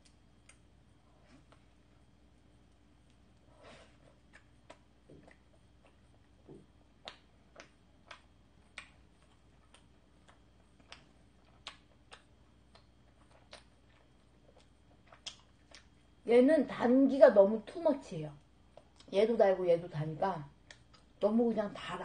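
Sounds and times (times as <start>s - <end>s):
wet mouth clicks and smacks: 7.0s - 16.0s, 20.6s - 21.1s.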